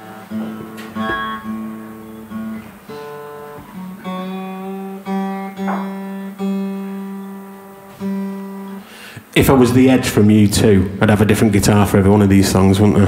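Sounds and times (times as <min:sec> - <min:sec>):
acoustic guitar low note plucked: 0:00.0 - 0:08.9.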